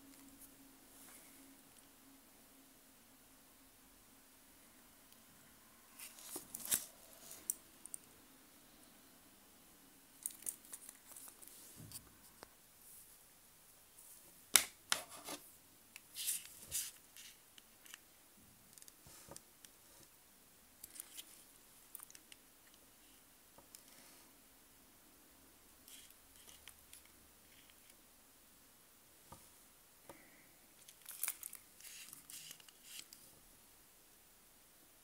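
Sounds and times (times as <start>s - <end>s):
wristwatch handling scrapes and clicks: 25.9s - 27.9s, 30.8s - 33.2s.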